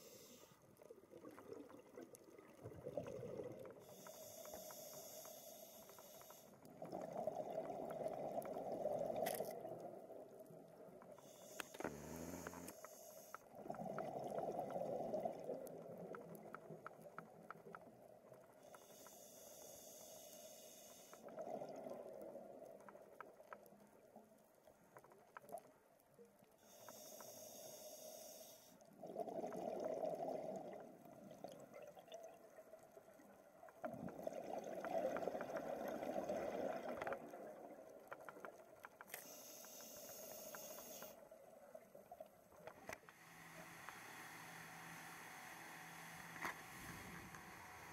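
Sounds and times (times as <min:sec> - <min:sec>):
regulator inhale hiss: 0:00.0 - 0:00.6, 0:03.8 - 0:06.6, 0:11.2 - 0:13.5, 0:18.6 - 0:21.3, 0:26.6 - 0:28.9, 0:39.2 - 0:41.2, 0:43.1 - 0:47.9
exhaust bubbles: 0:13.5 - 0:16.3.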